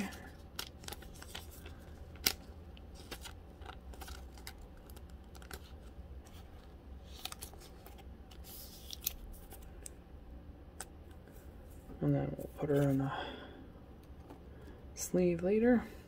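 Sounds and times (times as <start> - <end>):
plastic sleeve crinkling: 0.0 - 9.9.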